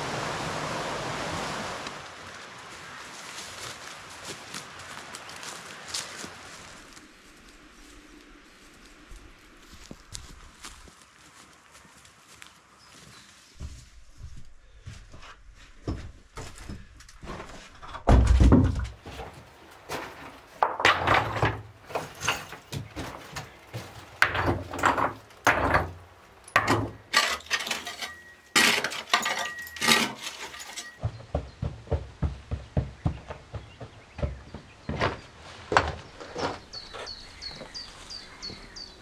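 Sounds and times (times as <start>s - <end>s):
rubble clattering and clinking: 17.7s - 31.1s
hand tool knocking rubble: 20.6s - 23.2s, 24.2s - 31.1s.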